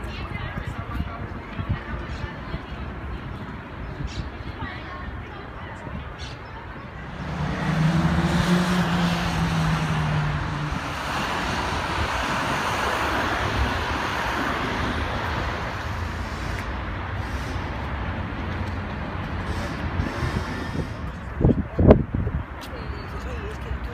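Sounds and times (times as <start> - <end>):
passing traffic noise: 0.0 - 23.9
vehicle engine drone: 6.8 - 21.6.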